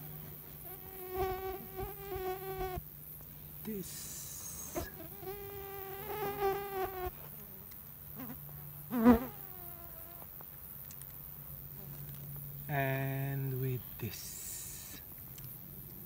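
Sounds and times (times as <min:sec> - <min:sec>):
flying insect buzzing: 0:00.0 - 0:02.8, 0:03.7 - 0:10.4.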